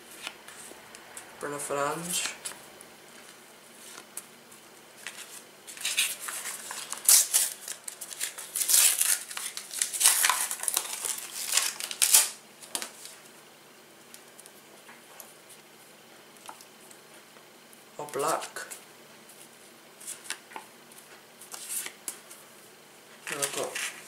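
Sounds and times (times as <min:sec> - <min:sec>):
paper stickers rustling: 0:05.0 - 0:13.2, 0:23.2 - 0:24.0.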